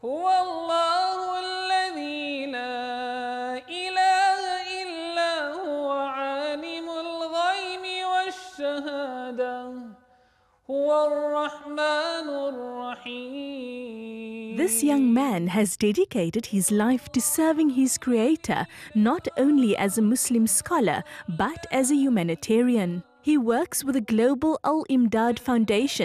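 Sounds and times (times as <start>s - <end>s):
man reciting melodically: 14.5s - 15.2s, 16.6s - 22.6s.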